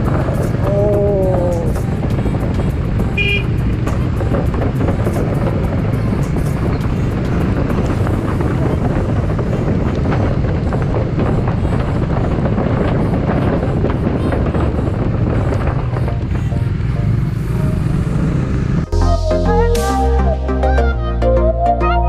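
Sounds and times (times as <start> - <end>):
wind on microphone: 0.0 - 18.9
motorcycle engine running: 0.0 - 19.0.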